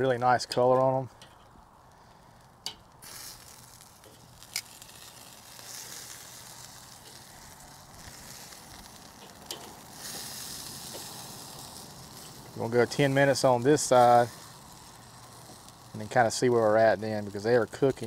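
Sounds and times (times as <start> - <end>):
chicken wings sizzling on grill: 1.9 - 18.0
metal tongs clicking on grate: 9.2 - 9.8.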